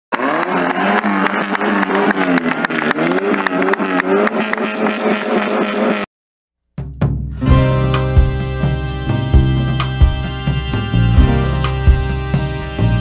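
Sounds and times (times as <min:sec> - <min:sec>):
engine revving: 0:00.1 - 0:06.1, 0:07.9 - 0:13.0
steady low drone: 0:07.5 - 0:13.0.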